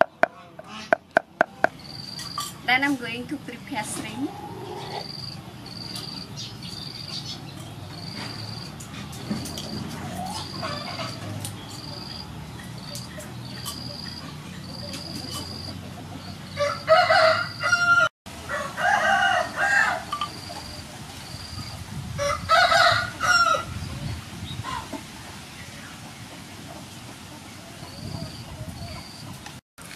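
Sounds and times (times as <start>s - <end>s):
rooster crowing: 16.6s - 20.3s, 22.2s - 23.7s.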